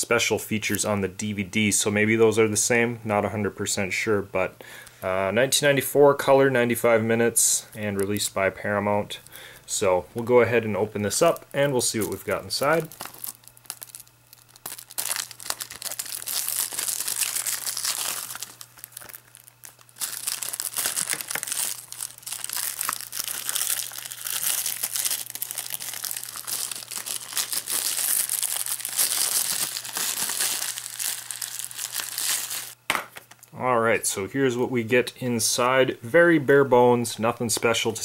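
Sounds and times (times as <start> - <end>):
plastic shrink wrap crinkling: 7.8 - 8.4, 11.1 - 33.5.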